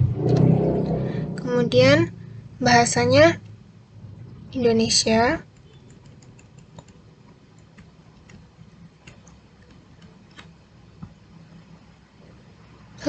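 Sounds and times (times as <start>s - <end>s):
low background hum: 0.0s - 13.0s
mouse scroll wheel clicks: 5.6s - 10.6s.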